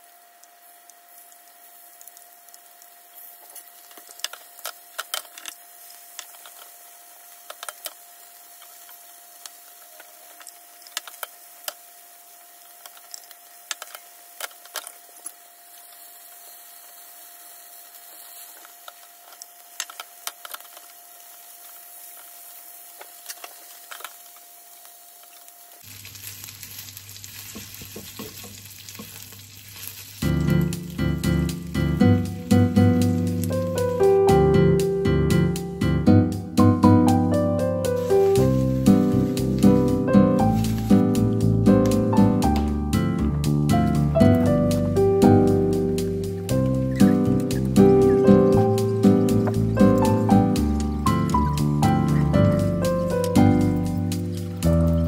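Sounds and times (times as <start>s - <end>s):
food sizzling in a frying pan: 0.0s - 55.0s
music: 30.2s - 55.0s.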